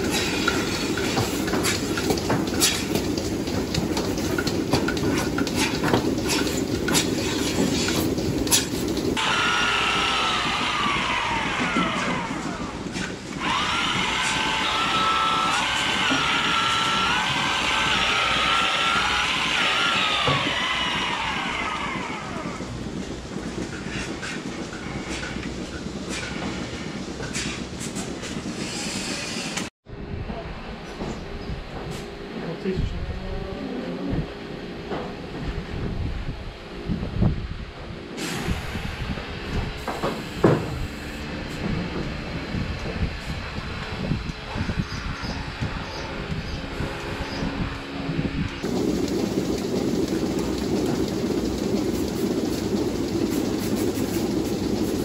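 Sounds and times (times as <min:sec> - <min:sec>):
milking machinery running: 0:00.0 - 0:29.7, 0:38.2 - 0:55.0
platform clacks: 0:48.6 - 0:55.0.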